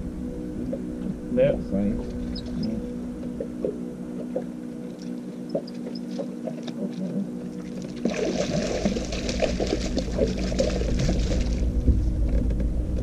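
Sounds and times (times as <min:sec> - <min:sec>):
boat motor humming: 0:00.0 - 0:13.0
fish thrashing and splashing: 0:07.5 - 0:11.7.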